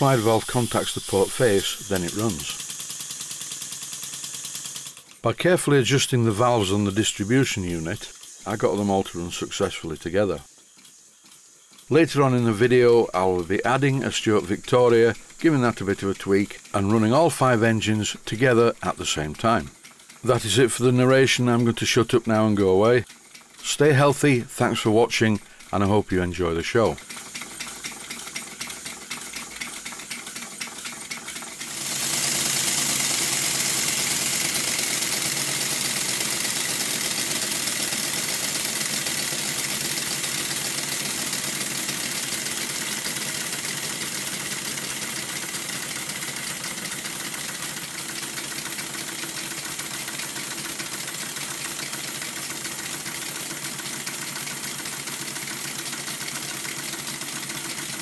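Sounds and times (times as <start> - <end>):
air hissing: 0.0 - 3.3
model steam engines clattering: 0.0 - 58.0.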